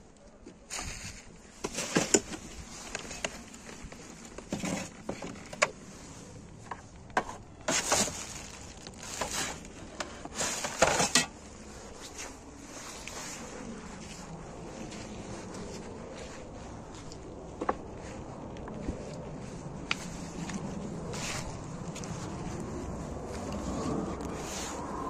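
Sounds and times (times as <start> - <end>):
plastic bin bags rustling: 0.7 - 5.9, 6.9 - 13.8
items knocking and clattering: 1.6 - 2.5, 4.3 - 5.8, 6.7 - 9.6, 10.2 - 11.4.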